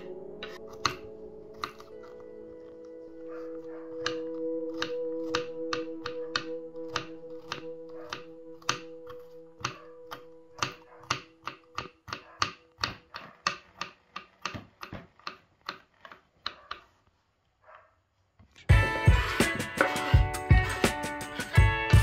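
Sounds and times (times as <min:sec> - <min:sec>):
knife chopping on wooden board: 0:00.0 - 0:02.0, 0:03.6 - 0:15.9
music: 0:00.0 - 0:11.3, 0:18.7 - 0:22.0.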